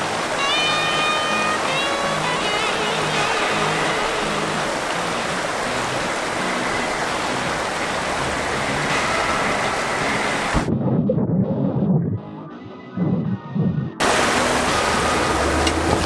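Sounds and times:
creek water rushing and splashing: 0.0s - 10.7s, 14.0s - 16.0s
muffled underwater gurgle: 6.4s - 14.0s.

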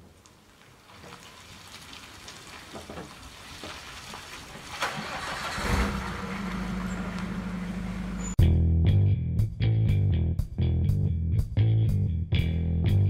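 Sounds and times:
van engine starting and idling: 4.5s - 8.4s.

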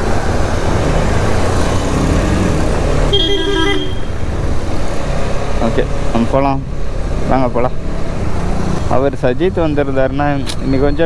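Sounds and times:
road and wind noise: 0.0s - 11.0s
vehicle horn toot: 3.1s - 4.2s.

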